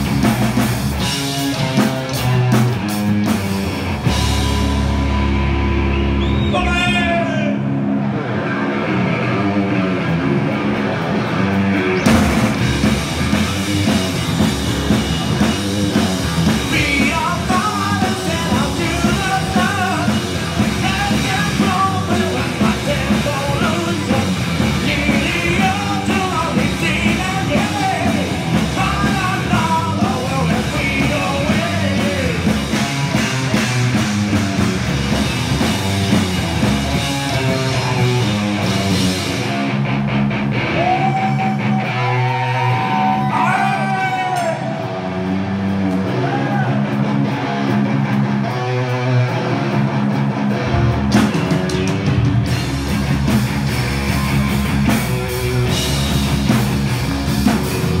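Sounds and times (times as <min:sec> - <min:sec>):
rock band playing loudly: 0:00.0 - 0:58.0
person singing or shouting: 0:06.4 - 0:07.7, 0:16.6 - 0:32.5, 0:37.4 - 0:38.6, 0:40.6 - 0:45.3, 0:46.1 - 0:47.0.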